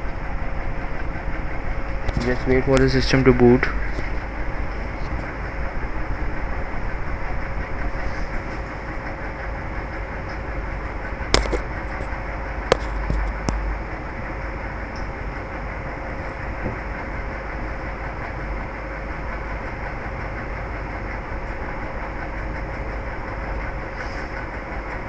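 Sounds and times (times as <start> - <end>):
mechanical rumble and hiss: 0.0 - 25.0
sharp clicks: 11.4 - 11.7.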